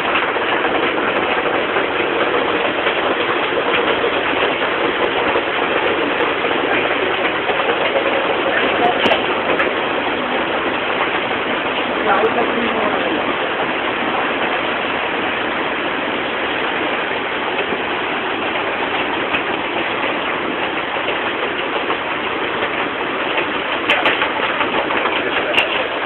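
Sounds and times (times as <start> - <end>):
heavy rain pouring: 0.0 - 26.0.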